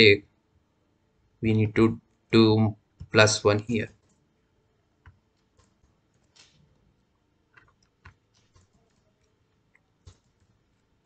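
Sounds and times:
keyboard keys clicking: 0:05.0 - 0:06.8, 0:07.5 - 0:10.8.

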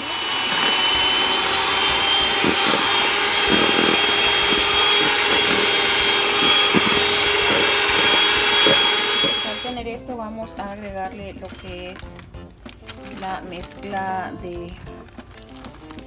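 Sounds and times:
electric hand mixer whine: 0:00.0 - 0:09.8.

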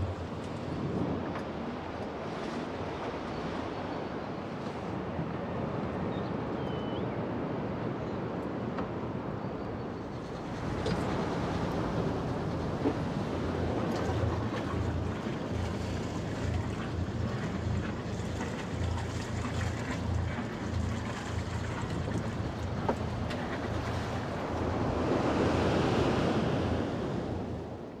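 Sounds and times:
sea wash: 0:00.0 - 0:28.0
wind buffeting microphone: 0:10.2 - 0:28.0
wave breaking on beach: 0:23.3 - 0:27.8.

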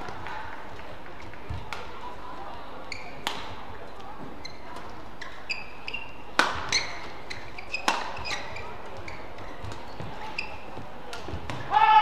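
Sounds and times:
rackets hitting shuttlecock: 0:00.0 - 0:02.0, 0:03.0 - 0:05.4, 0:06.0 - 0:11.7
shoes squeaking on court: 0:01.2 - 0:11.7.

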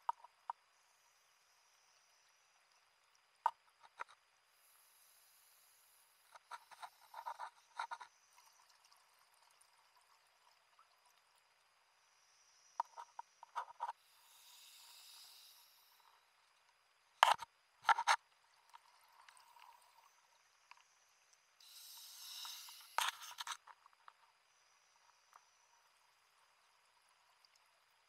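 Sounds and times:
regulator air hiss: 0:14.0 - 0:16.2, 0:21.6 - 0:23.5.

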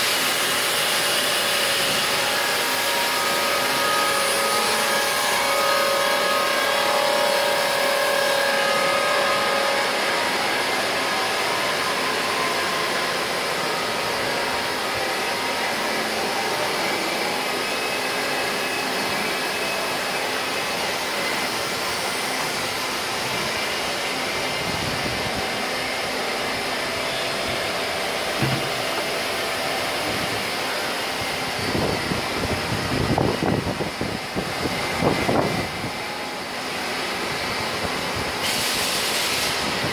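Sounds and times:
machines whirring: 0:00.0 - 0:39.9
rumbling knocks: 0:28.4 - 0:29.1.

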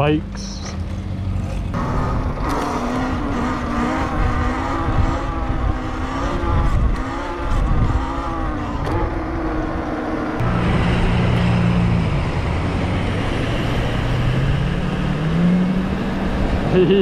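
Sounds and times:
wind rumble on microphone: 0:01.7 - 0:09.4.

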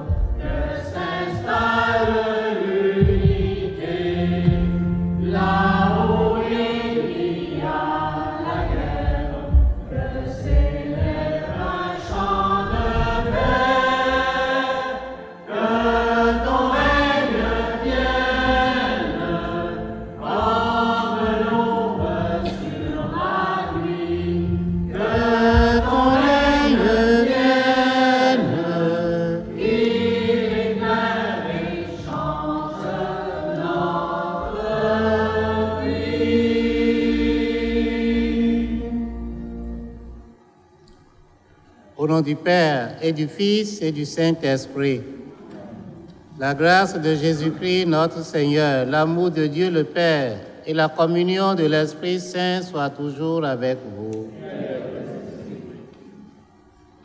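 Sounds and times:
group singing a hymn: 0:00.0 - 0:40.4, 0:42.0 - 0:57.0
sustained instrumental chords: 0:00.0 - 0:42.1.

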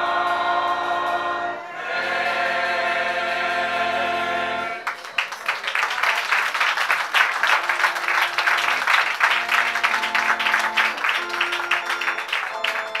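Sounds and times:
audience applause: 0:04.8 - 0:13.0
instrument playing held chords: 0:07.6 - 0:13.0.

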